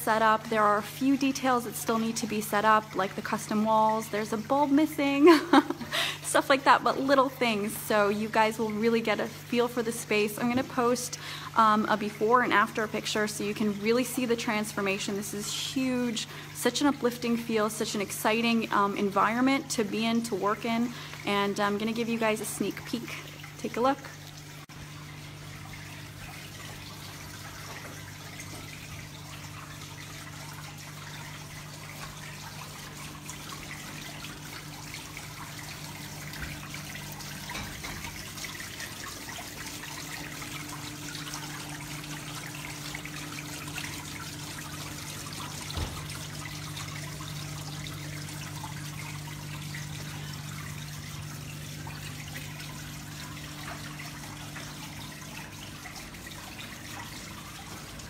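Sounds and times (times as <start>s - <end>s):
water trickling and splashing: 0.0s - 58.0s.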